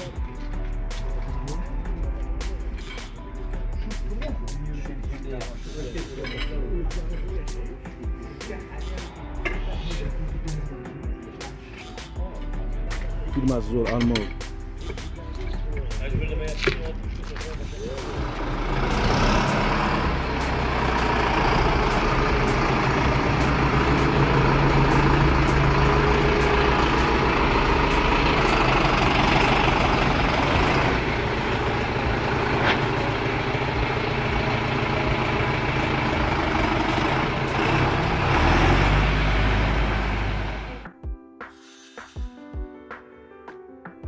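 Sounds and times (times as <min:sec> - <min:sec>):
tractor diesel engine running: 0:13.0 - 0:40.8.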